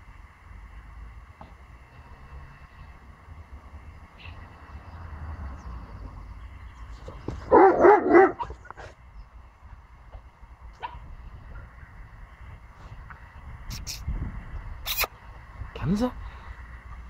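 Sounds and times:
dog barking: 7.5 - 8.9, 10.8 - 11.1.

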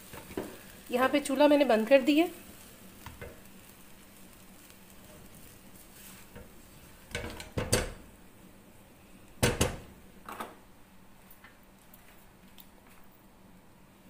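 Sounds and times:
kitchenware clattering: 7.1 - 8.0.

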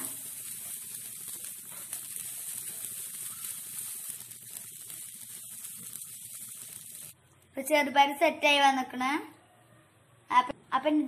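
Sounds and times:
coconut sizzling in pan: 0.0 - 7.8.

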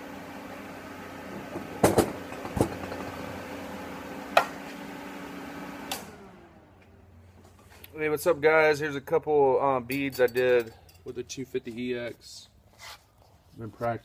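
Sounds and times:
welder cooling fan hum: 0.0 - 12.5.

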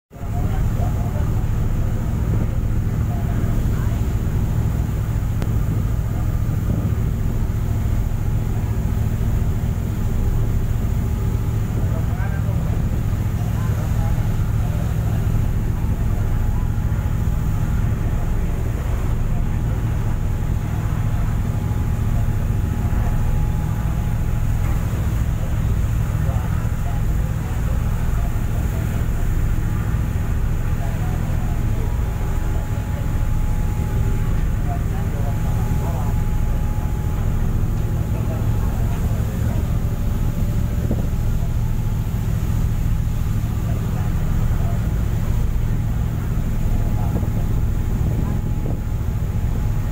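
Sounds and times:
wake rushing along hull: 0.1 - 49.9
ship engines droning: 0.2 - 49.9
wind buffeting microphone: 37.8 - 42.9, 46.0 - 49.9.

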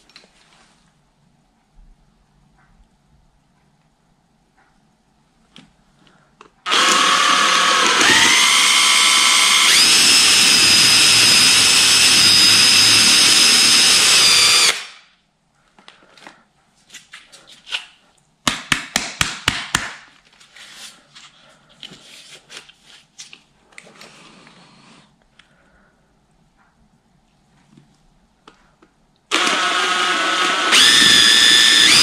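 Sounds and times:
cordless drill whining: 6.7 - 14.9, 29.3 - 32.0.

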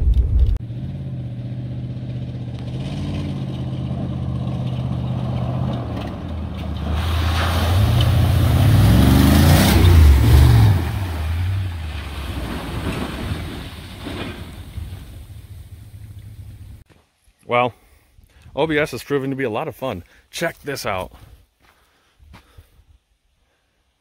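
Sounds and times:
pickup truck engine: 0.0 - 16.8
tyres throwing muddy water: 2.8 - 16.6.

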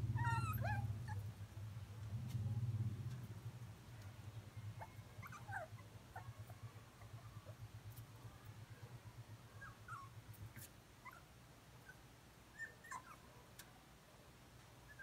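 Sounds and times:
low hum: 0.0 - 9.6
puppies whimpering and squeaking: 0.1 - 1.2, 4.8 - 7.6, 9.6 - 11.3, 12.6 - 13.3.

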